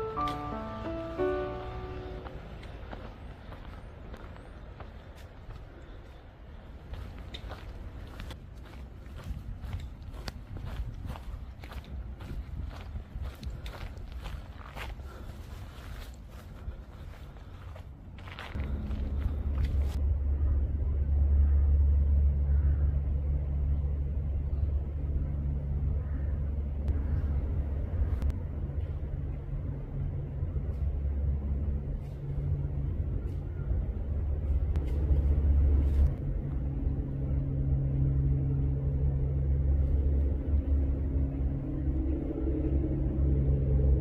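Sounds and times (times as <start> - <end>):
higher hum: 0.0 - 4.1, 16.4 - 44.0
low engine rumble of machinery: 0.0 - 44.0.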